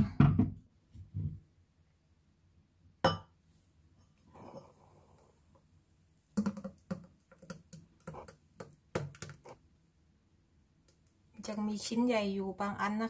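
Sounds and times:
glass and jar clinking: 3.0 - 3.3.

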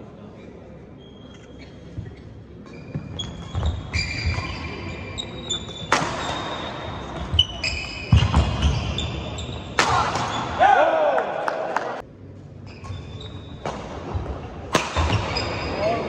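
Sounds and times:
shoes squeaking on floor: 0.4 - 10.5, 12.6 - 13.8, 15.0 - 16.0
racket hitting shuttlecock: 5.7 - 6.6, 9.7 - 10.6, 14.7 - 15.4.

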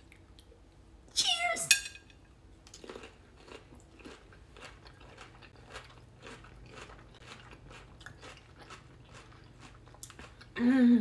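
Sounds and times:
person chewing crunchy cucumber: 2.6 - 10.6.

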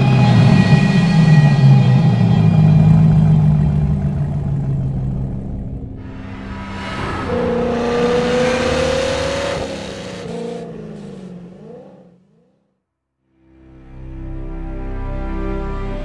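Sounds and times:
spinning tyres hissing: 0.0 - 12.5
car engine revving: 0.0 - 12.7.

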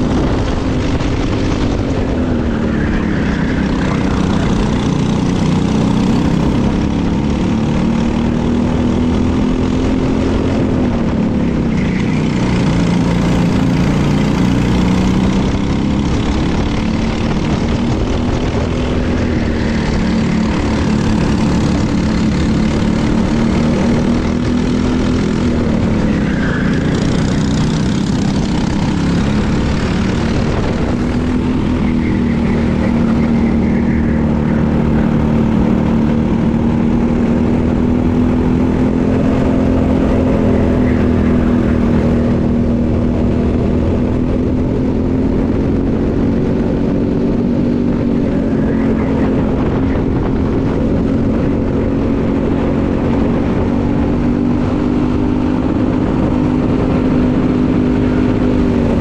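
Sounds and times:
kart engine running hard: 0.0 - 59.0.

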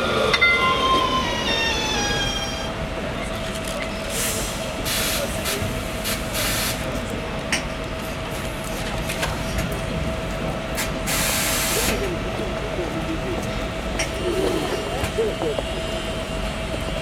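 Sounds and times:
tram humming: 0.0 - 17.0
tram motor whine: 0.0 - 17.0
compressed air hisses: 4.1 - 6.8, 11.1 - 12.0.

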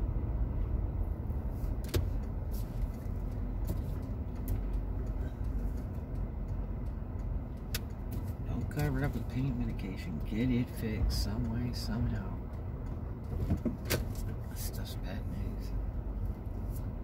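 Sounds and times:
car driving rumble from inside: 0.0 - 17.0
sharp clicks: 3.2 - 9.0.

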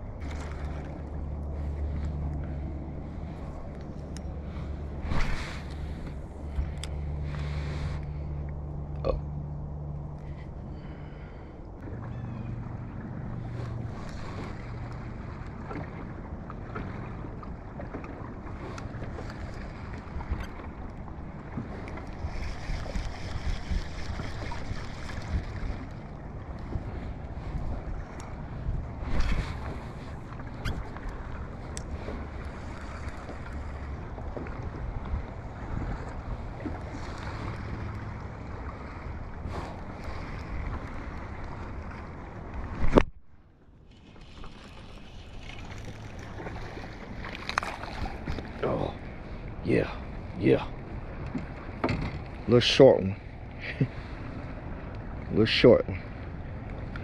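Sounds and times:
water lapping against hull: 0.0 - 57.0
light ticks: 3.7 - 4.3
wind buffeting microphone: 11.7 - 43.2.

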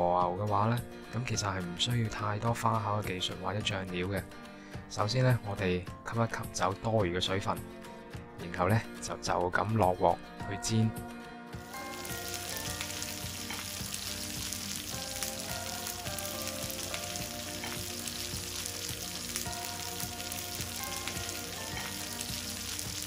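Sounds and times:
steaks sizzling on grill pan: 11.6 - 23.0.

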